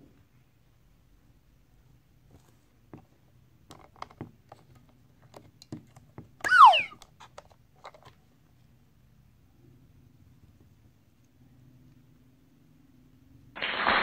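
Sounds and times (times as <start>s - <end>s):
short squeak falling in pitch: 6.4s - 7.0s.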